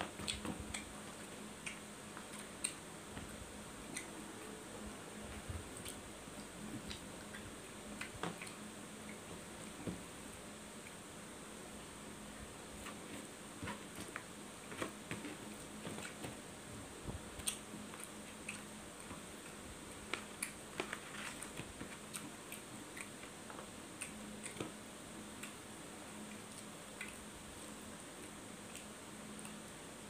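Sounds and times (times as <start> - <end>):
steady low hum: 0.0 - 30.0
person chewing: 17.4 - 18.7.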